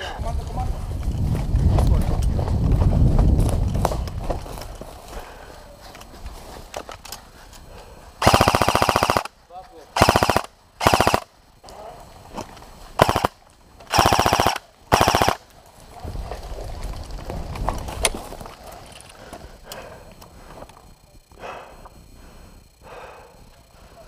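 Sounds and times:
airsoft gun full-auto bursts: 8.2s - 9.4s, 10.0s - 11.4s, 13.0s - 15.5s.

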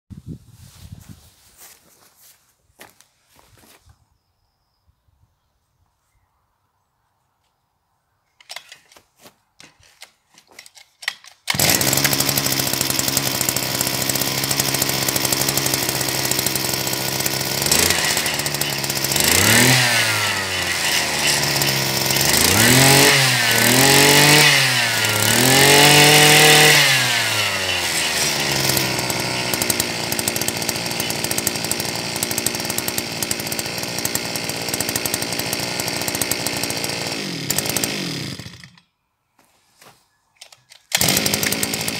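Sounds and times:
starter cord pulls: 8.4s - 38.9s, 40.4s - 41.9s
two-stroke engine idling and revving: 11.5s - 38.8s, 40.9s - 41.9s.

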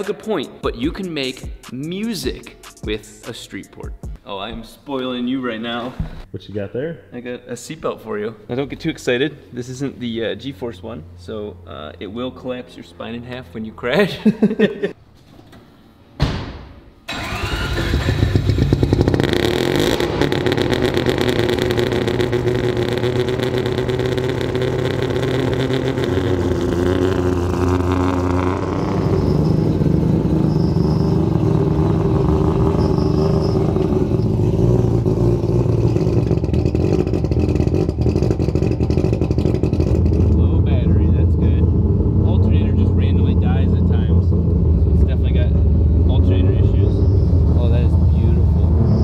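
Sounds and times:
car engine starting and idling: 17.0s - 49.0s.

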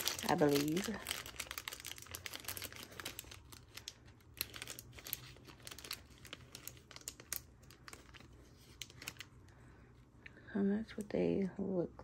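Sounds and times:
packaging crinkling and rustling: 0.0s - 9.5s.

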